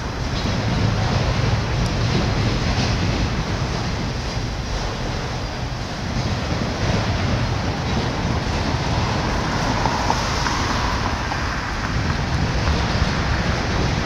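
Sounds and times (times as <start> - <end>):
freight cars rolling on rails: 0.0 - 14.0
car driving past: 8.9 - 14.0.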